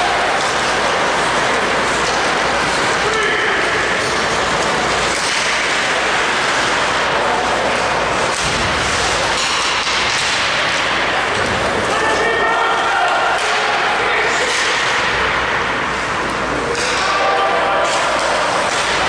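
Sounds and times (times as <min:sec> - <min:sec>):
ice rink rushing ambience: 0:00.0 - 0:19.0.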